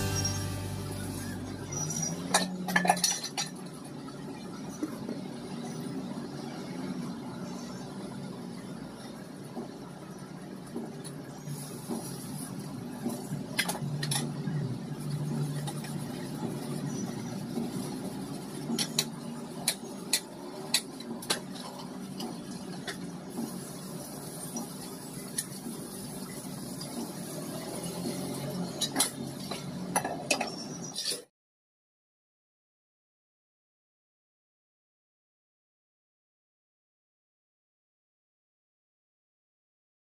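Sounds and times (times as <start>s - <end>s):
dishes and utensils clinking: 2.3s - 3.6s.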